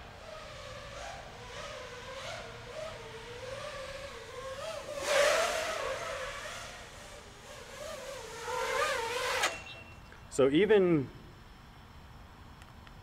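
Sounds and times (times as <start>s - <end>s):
quadcopter propellers whining: 0.0s - 10.2s.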